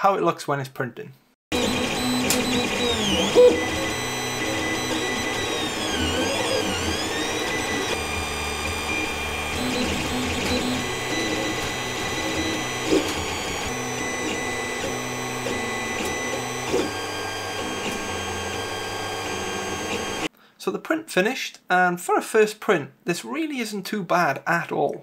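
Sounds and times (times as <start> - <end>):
stepper motors whining: 1.5 - 20.3.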